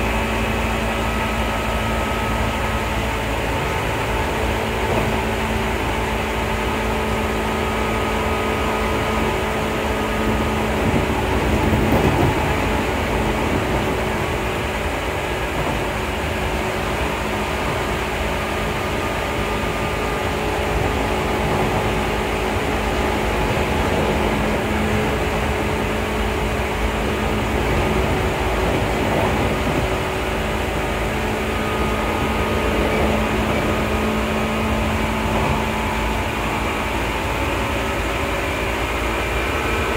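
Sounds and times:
electric train motor hum: 0:00.0 - 0:39.9
wheels rumbling on rails: 0:00.0 - 0:39.9.

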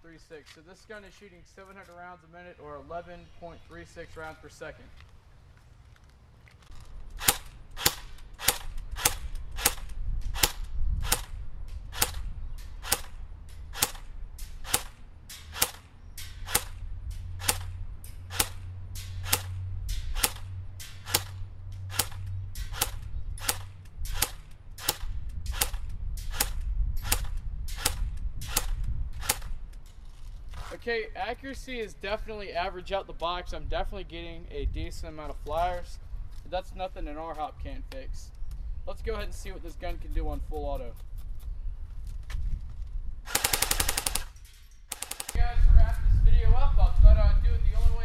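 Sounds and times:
airsoft gun firing single shots: 0:07.2 - 0:16.8, 0:17.4 - 0:17.7, 0:18.3 - 0:29.6, 0:43.3 - 0:45.4.

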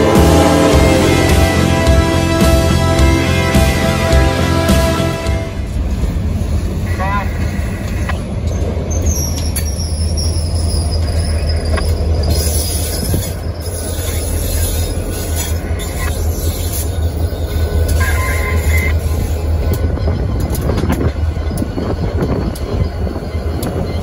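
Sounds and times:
diesel locomotive engine drone: 0:00.0 - 0:24.0
high wheel squeal: 0:07.4 - 0:24.0.

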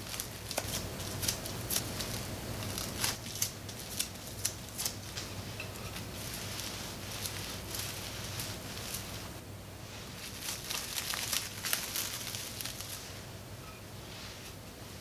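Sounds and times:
sharp plastic crackles: 0:00.0 - 0:05.3, 0:10.2 - 0:13.1
cling film crinkling: 0:00.0 - 0:09.4, 0:10.0 - 0:13.2.

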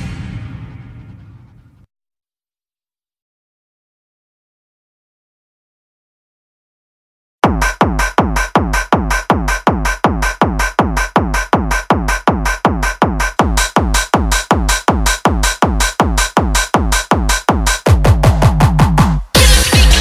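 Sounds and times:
electronic dance music: 0:07.4 - 0:20.0.

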